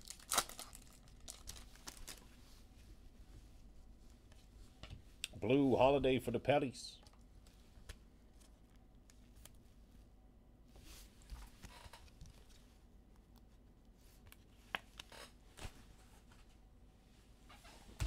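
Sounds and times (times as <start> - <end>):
rustling card wrappers: 0.0 - 2.4.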